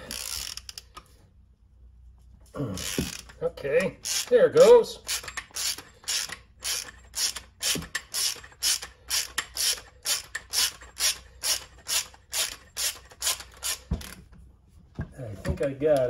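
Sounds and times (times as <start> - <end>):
hand ratchet clicking: 0.0 - 1.1, 2.8 - 14.2.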